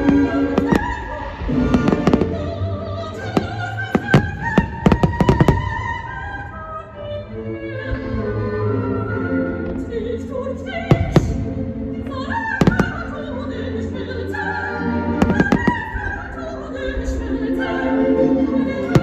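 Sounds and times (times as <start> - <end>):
operatic singing: 0.0 - 19.0
orchestral music: 0.0 - 19.0
fireworks bursting with bangs: 1.7 - 2.6, 3.2 - 5.8, 12.6 - 13.1, 15.2 - 16.0.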